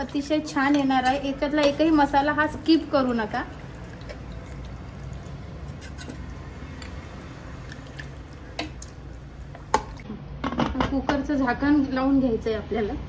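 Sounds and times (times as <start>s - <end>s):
wet squishing of stirred food: 0.8s - 10.1s.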